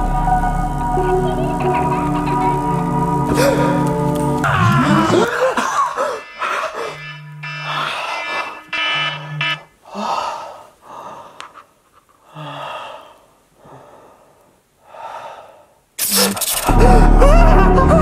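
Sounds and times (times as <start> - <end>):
man gasping and panting: 3.3 - 3.8, 9.8 - 11.6, 12.2 - 15.8
man groaning: 4.5 - 7.0.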